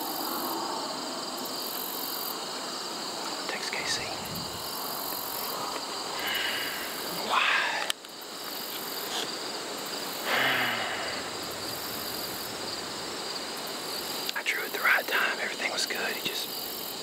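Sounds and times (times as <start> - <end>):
crickets and insects chirping: 0.0 - 17.0
man sighing: 6.2 - 7.9, 10.2 - 12.3.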